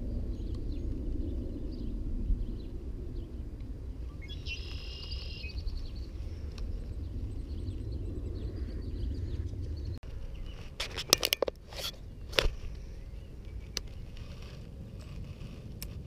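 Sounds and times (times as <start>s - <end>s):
wind rumble on microphone: 0.0s - 16.0s
bird trilling: 4.1s - 6.1s.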